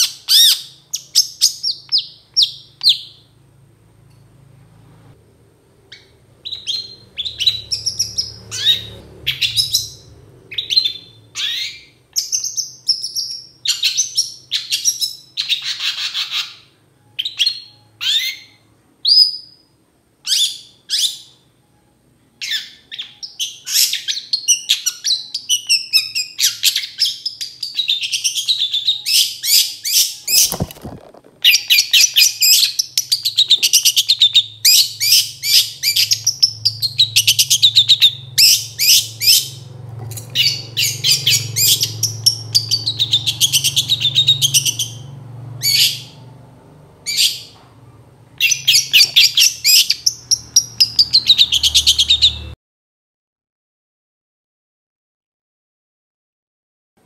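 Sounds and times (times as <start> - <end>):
bird singing chirps: 0.0 - 3.4, 5.9 - 39.7, 40.3 - 46.4, 48.4 - 52.6.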